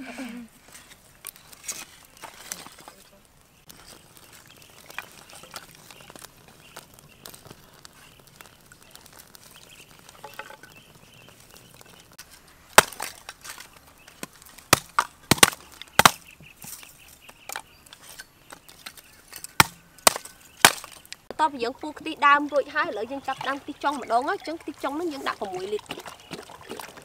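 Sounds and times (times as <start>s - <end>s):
firewood sticks being handled: 0.2s - 21.4s, 22.2s - 26.2s
charcoal and wood knocking: 3.7s - 21.3s, 22.1s - 27.0s.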